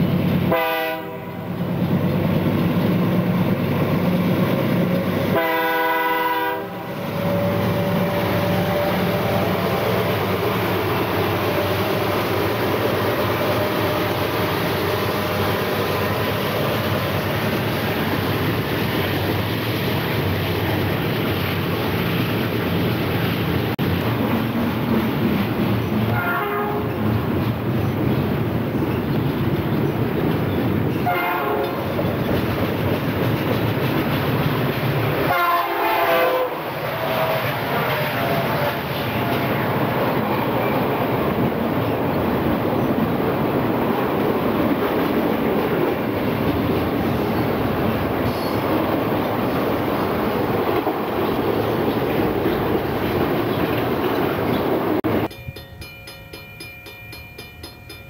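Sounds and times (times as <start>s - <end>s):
wheels clattering on rail: 0.0s - 5.9s, 7.2s - 58.0s
train rumble: 0.0s - 58.0s
locomotive horn blast: 0.5s - 1.5s, 5.3s - 9.8s, 26.1s - 27.0s, 31.0s - 31.8s, 35.2s - 39.6s.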